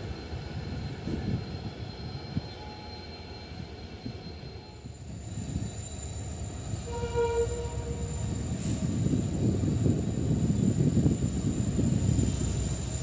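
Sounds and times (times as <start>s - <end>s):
train rumbling: 0.0s - 13.0s
train horn blast: 6.8s - 8.2s.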